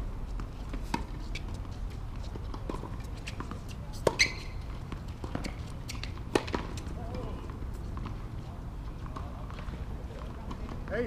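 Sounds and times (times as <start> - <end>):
tennis ball bouncing and struck: 0.3 - 8.2.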